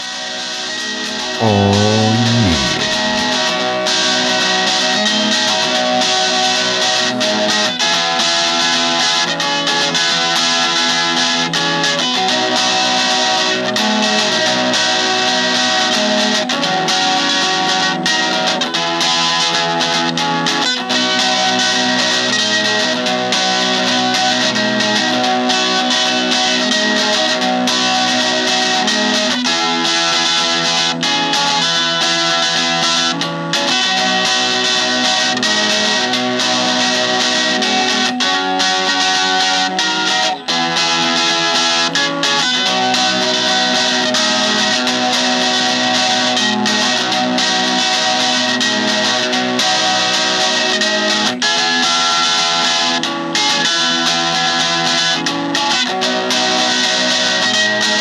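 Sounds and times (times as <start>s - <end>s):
guitar background music: 0.0s - 58.0s
person saying oh: 1.4s - 3.1s.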